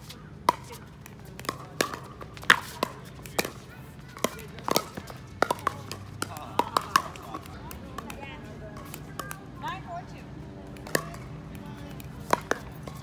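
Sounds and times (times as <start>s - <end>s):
paddles striking plastic ball: 4.2s - 8.2s.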